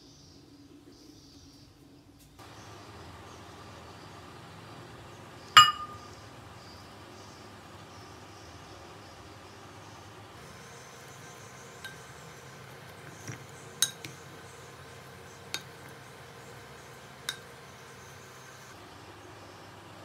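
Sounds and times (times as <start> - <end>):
wooden spoon clinking ceramic bowl: 5.6 - 6.0, 13.0 - 14.2.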